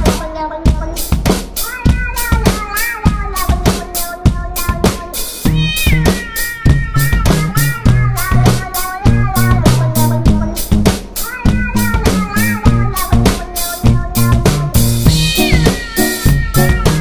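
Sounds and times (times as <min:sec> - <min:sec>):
drum kit beat: 0:00.0 - 0:17.0
cat meowing: 0:01.6 - 0:04.8, 0:05.4 - 0:09.6, 0:11.2 - 0:14.1, 0:15.1 - 0:17.0
low bass notes: 0:13.9 - 0:15.7, 0:16.3 - 0:17.0.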